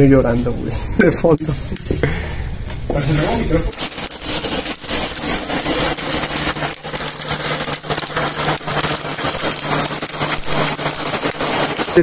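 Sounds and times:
electric air blower running: 3.0s - 12.0s.

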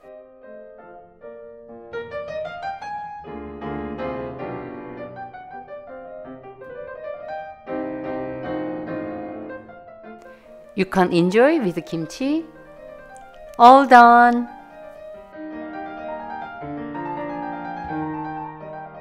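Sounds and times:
gentle piano melody: 0.0s - 19.0s.

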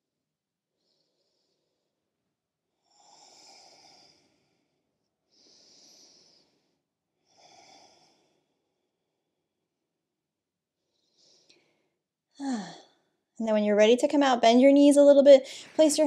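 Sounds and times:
woman breathing softly: 0.8s - 2.1s, 2.8s - 9.0s, 10.8s - 13.1s, 15.4s - 15.8s.

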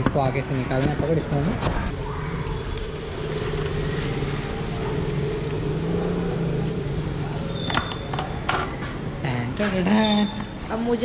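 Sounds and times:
motor engine drone: 1.2s - 8.5s.

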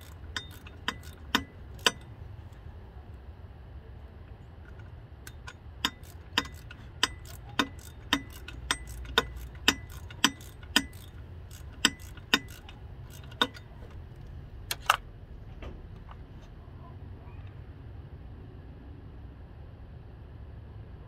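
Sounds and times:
sharp metallic clicks: 0.0s - 2.7s, 4.6s - 15.1s
low steady hum: 0.0s - 21.0s.

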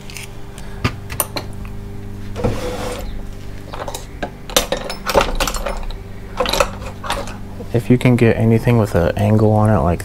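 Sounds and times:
low hum: 0.0s - 10.0s
metal tools clinking: 2.7s - 7.7s.

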